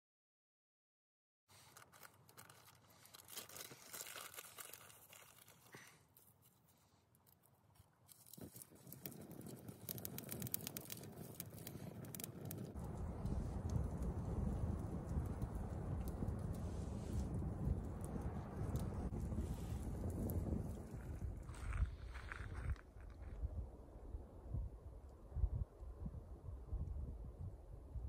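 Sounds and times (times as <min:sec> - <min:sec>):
campfire crackling: 0:08.0 - 0:22.9.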